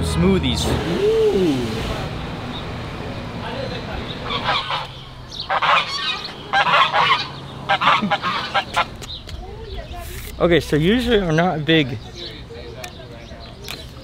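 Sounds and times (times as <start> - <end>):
geese honking: 3.9 - 9.0.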